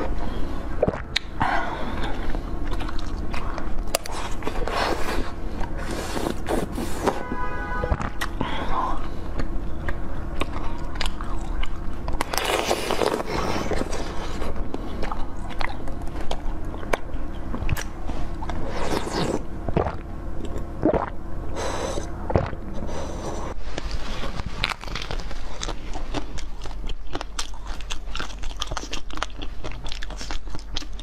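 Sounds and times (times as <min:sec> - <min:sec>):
chewing jelly sweet: 0:00.0 - 0:07.2, 0:08.0 - 0:31.0
crunchy bites: 0:09.4 - 0:21.1.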